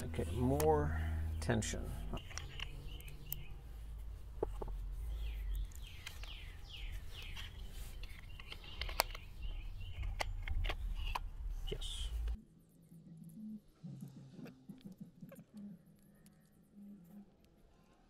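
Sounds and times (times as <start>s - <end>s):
bird chirping: 0.0s - 12.3s
plastic parts clicking and knocking: 7.2s - 11.4s.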